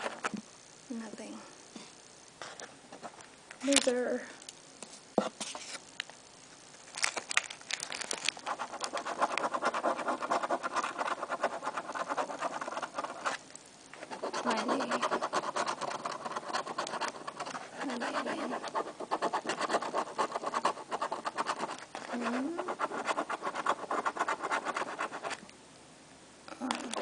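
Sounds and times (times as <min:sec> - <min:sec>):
coin scratching lottery ticket: 0:08.4 - 0:13.4, 0:14.0 - 0:25.4.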